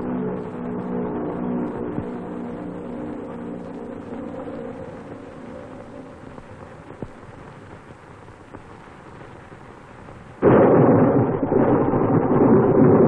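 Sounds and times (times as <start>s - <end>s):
film soundtrack hiss: 0.0s - 13.0s
loud crash of thunder: 10.4s - 13.0s
roar of storm noise: 10.4s - 13.0s.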